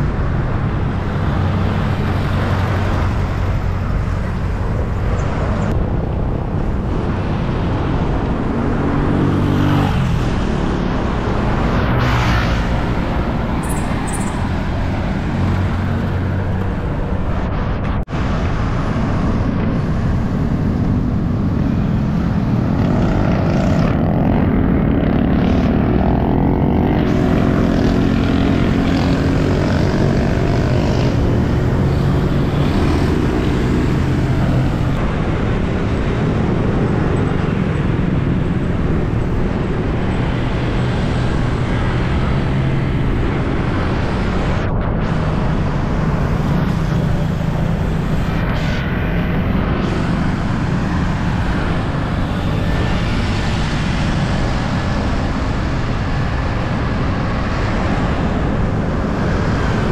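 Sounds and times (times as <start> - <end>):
passing vehicle engine hum: 0.0 - 59.9
road traffic noise: 0.0 - 59.9
wind rush on microphone: 0.0 - 59.9.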